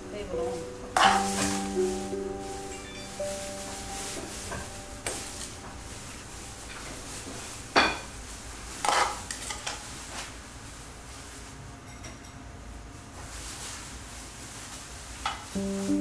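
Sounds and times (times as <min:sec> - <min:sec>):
ladle clinking against bowls: 0:01.0 - 0:01.7.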